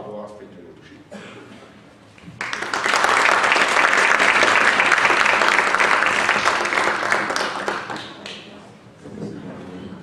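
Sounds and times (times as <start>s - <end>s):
audience applauding: 2.4s - 8.5s.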